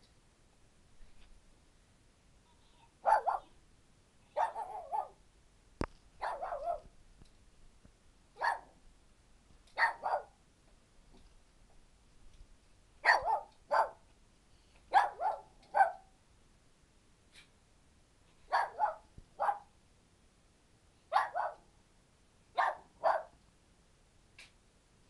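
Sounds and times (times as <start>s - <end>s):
small dogs barking: 3.0s - 3.6s, 4.4s - 5.2s, 6.2s - 6.9s, 8.4s - 8.8s, 9.8s - 10.4s, 13.0s - 14.0s, 14.9s - 16.1s, 18.5s - 19.7s, 21.1s - 21.7s, 22.5s - 23.4s.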